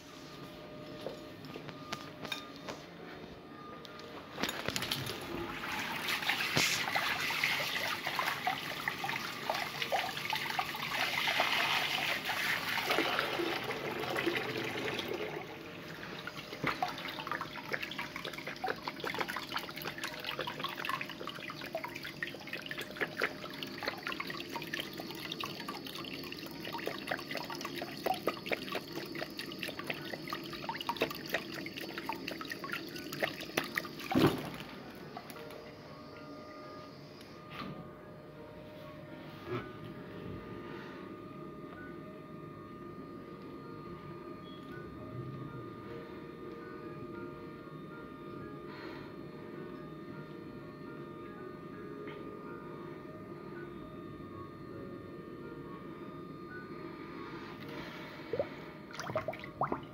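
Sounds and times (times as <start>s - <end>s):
water running from a tap: 5.5s - 15.5s, 16.3s - 34.6s
water dripping: 16.3s - 34.5s.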